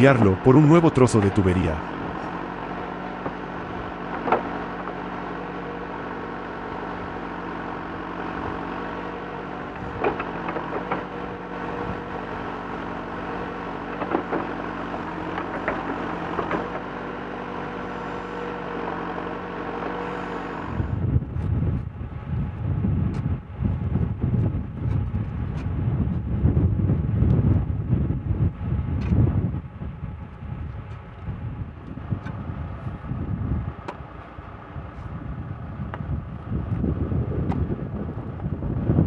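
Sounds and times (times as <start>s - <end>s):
diesel engine under load: 0.0s - 39.0s
gusty wind on microphone: 20.6s - 39.0s.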